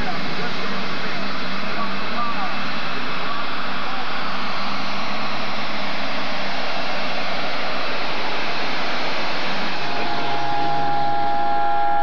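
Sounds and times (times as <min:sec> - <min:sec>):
tractor engine roaring under load: 0:00.0 - 0:12.0.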